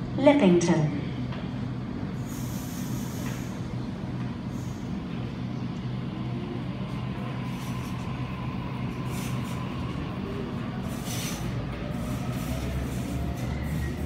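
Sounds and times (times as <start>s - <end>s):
electric train humming: 0.0s - 14.0s
air hiss: 2.2s - 3.7s, 10.8s - 13.8s.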